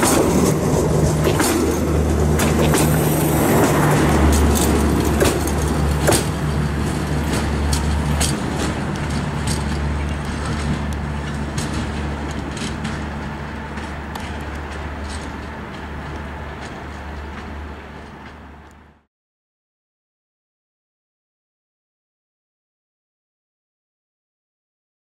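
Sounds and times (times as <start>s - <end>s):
wheels clicking over track: 0.0s - 19.0s
train coaches rolling past: 0.0s - 19.1s.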